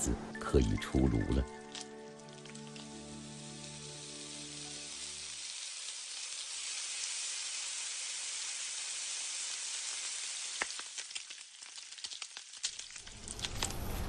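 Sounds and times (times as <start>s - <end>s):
roast duck sizzling: 1.6s - 14.0s
sharp crackles: 3.6s - 14.0s.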